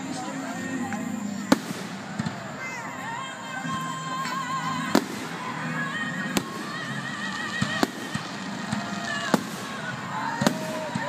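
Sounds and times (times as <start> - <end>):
music playing: 0.0 - 11.0
firework shells bursting: 4.2 - 11.0.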